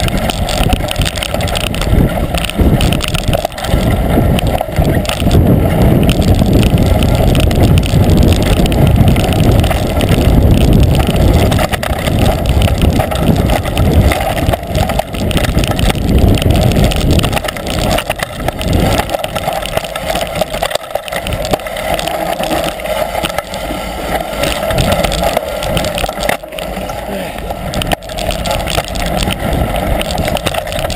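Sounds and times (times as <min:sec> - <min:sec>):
bike knocks on bumpy trail: 0:00.0 - 0:23.6
bike tyre noise: 0:00.0 - 0:30.9
wind buffeting microphone: 0:00.0 - 0:30.9.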